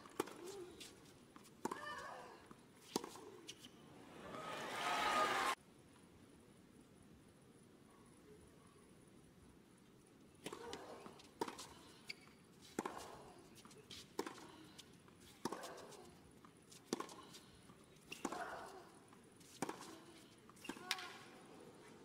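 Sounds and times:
racket striking tennis ball: 0:18.1 - 0:18.7.

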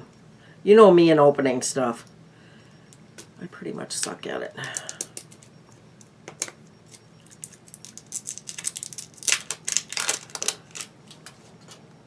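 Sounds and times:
packaging clicks and crinkly rustles: 0:06.3 - 0:11.8.

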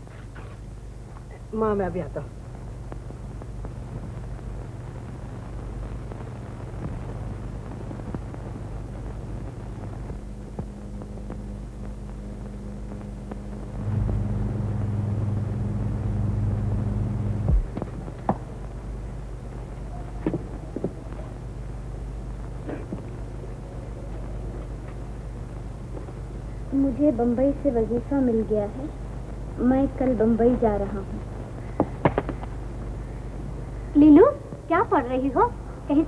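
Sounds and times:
film soundtrack hum and hiss: 0:00.0 - 0:36.0
low steady tone: 0:10.4 - 0:20.2.

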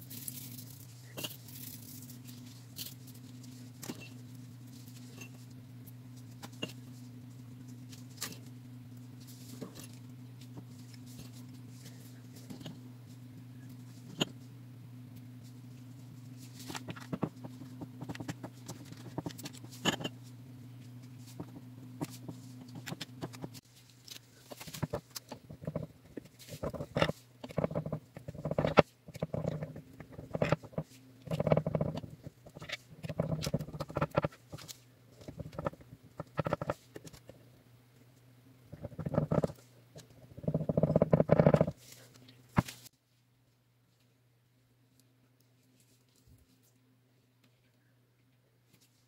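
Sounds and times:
parchment paper crinkling: 0:00.0 - 0:08.6, 0:21.0 - 0:35.8
steady low hum: 0:00.0 - 0:49.0.

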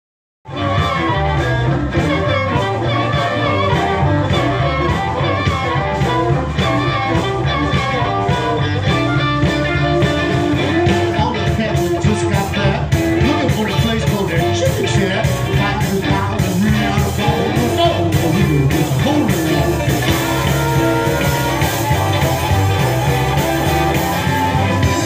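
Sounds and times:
bass guitar: 0:00.4 - 0:25.0
harmonica: 0:00.5 - 0:11.7, 0:16.7 - 0:25.0
drums on a steady beat: 0:00.5 - 0:25.0
electric guitars: 0:00.5 - 0:25.0.

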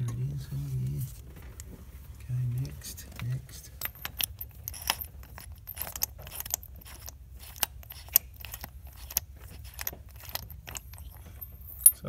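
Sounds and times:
low steady hum: 0:00.0 - 0:12.0
ratchet clicking and clinking: 0:03.8 - 0:12.0.

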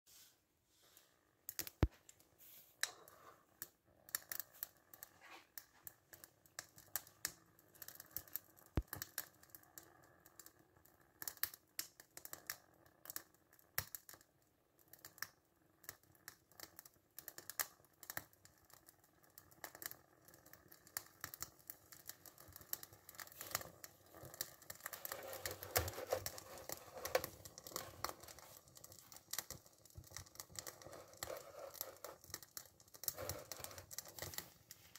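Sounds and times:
toy steam engine clicking and crackling: 0:16.0 - 0:34.9.

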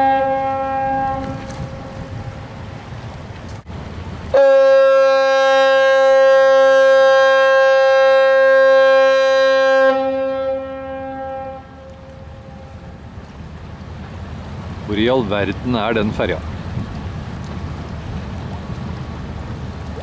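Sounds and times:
ship fog horn blast: 0:00.0 - 0:02.7, 0:04.3 - 0:13.1.

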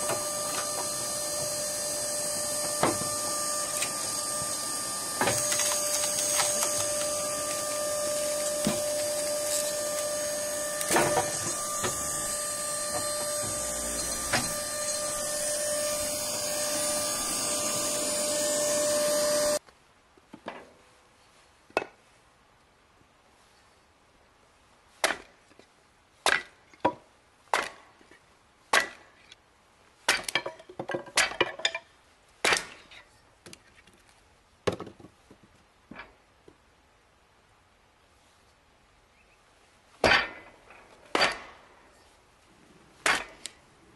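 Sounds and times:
log splitter machine whine: 0:00.0 - 0:19.6
wood splitting cracks: 0:02.5 - 0:15.0.

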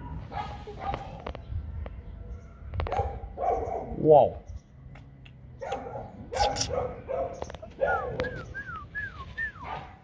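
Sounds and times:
puppies yipping and barking: 0:05.6 - 0:08.8, 0:09.4 - 0:10.0.

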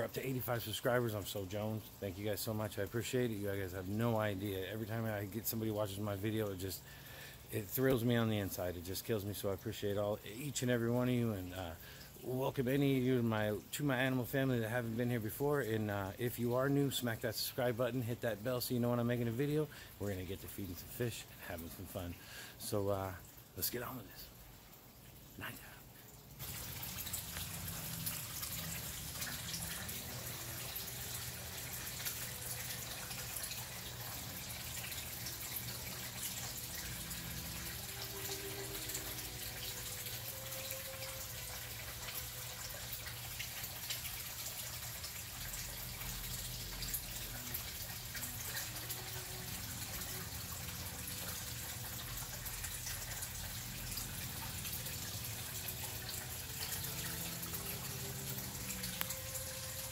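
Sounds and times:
water splashing into pond: 0:26.4 - 0:59.9.

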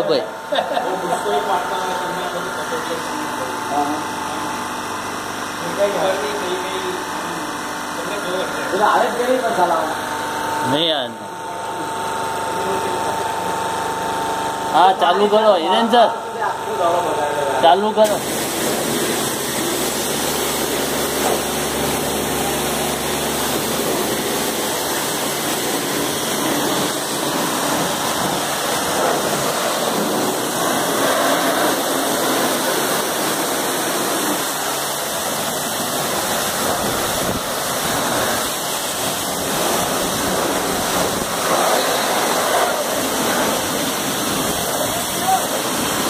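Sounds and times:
pump hum: 0:00.0 - 0:46.0
water jet hissing and spattering: 0:17.6 - 0:46.0.

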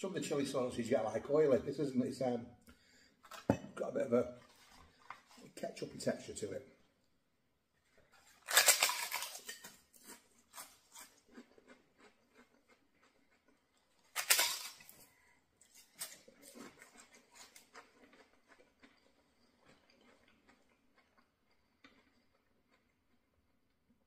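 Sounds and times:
crunchy chewing: 0:08.1 - 0:15.0, 0:15.6 - 0:23.3
crunchy bite: 0:08.3 - 0:13.2.

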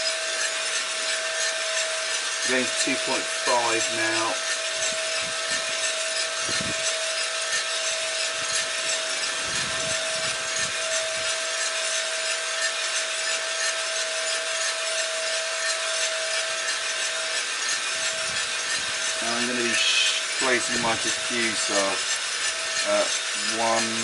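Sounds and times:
motor and fan hum: 0:00.0 - 0:24.0
coffee beans tumbling in drum: 0:15.5 - 0:24.0.

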